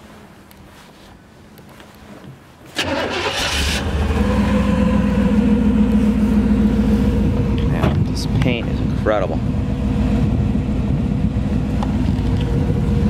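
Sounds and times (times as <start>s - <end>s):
car engine starting and idling: 2.8s - 13.0s.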